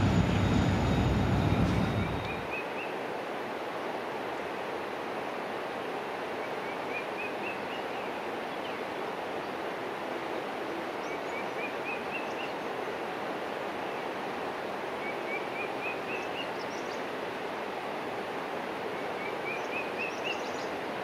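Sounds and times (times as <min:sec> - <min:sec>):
bird chirping song: 0:00.0 - 0:03.0, 0:11.0 - 0:12.6, 0:15.0 - 0:17.1, 0:19.0 - 0:20.8
rushing outdoor background: 0:00.0 - 0:21.0.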